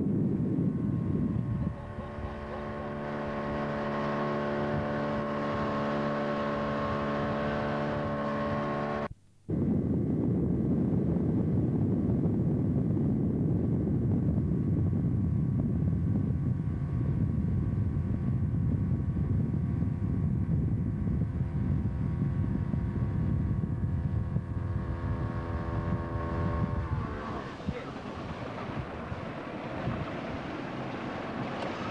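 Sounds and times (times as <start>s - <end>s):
boat engine running: 0.0s - 9.1s, 10.7s - 31.9s
dense low rush: 9.5s - 31.9s.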